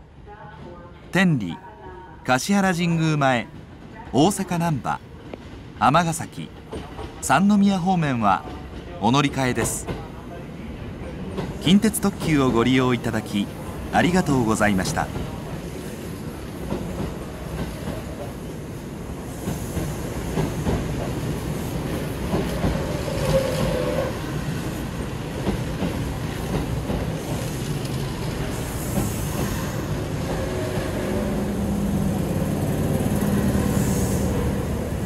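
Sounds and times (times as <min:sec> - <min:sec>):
low train motor hum: 0:15.1 - 0:35.0.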